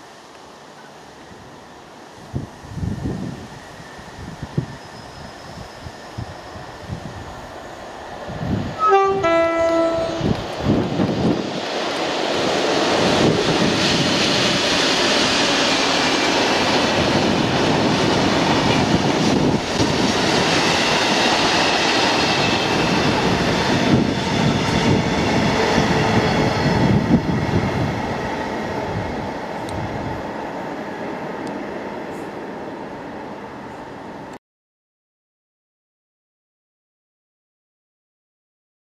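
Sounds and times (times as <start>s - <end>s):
faint wheel squeal: 3.6s - 6.9s
freight train wheels clattering on rails: 10.3s - 29.0s.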